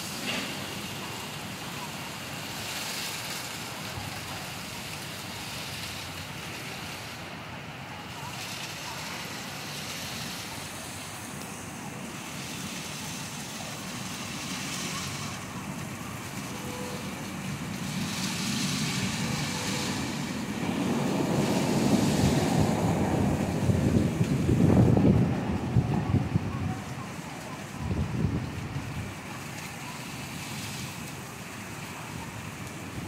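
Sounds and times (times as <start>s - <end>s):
heavy rain falling: 0.0s - 33.0s
wind gusts buffeting microphone: 8.4s - 30.1s.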